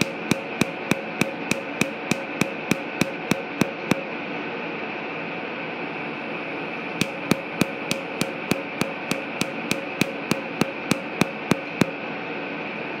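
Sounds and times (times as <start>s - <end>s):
laser pulses snapping: 0.0s - 4.0s, 7.0s - 11.9s
machine hum: 0.0s - 4.1s.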